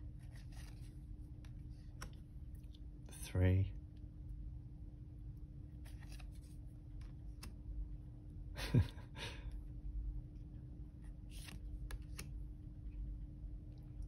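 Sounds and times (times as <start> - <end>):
cards rustling and tapping: 0.2 - 2.2, 5.8 - 7.6, 11.3 - 12.4.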